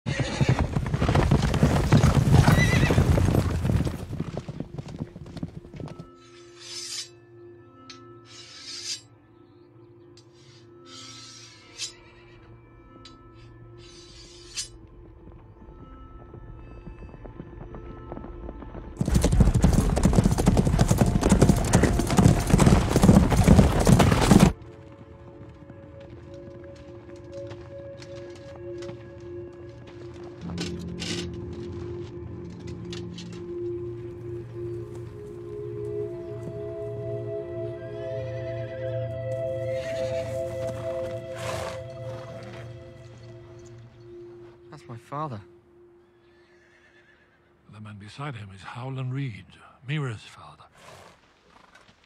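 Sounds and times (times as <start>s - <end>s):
horse whinnying: 0.1s - 3.5s, 39.6s - 42.7s, 46.3s - 47.6s
horse hoofbeats: 0.1s - 6.2s, 14.8s - 36.7s, 39.3s - 44.6s
low music drone: 4.6s - 19.0s, 20.2s - 46.4s.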